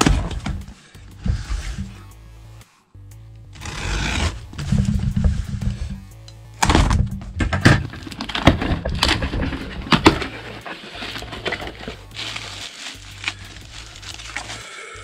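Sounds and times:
cardboard rustling: 0:07.6 - 0:14.7
cardboard tearing and crinkling: 0:07.8 - 0:14.7.

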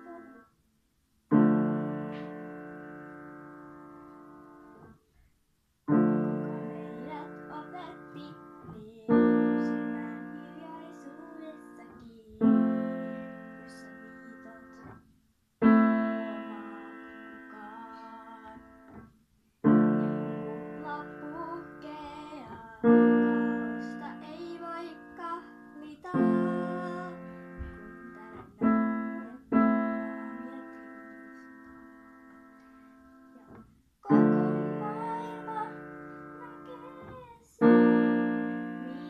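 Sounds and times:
piano playing slow chords: 0:01.3 - 0:05.0, 0:05.9 - 0:15.0, 0:15.6 - 0:39.0.

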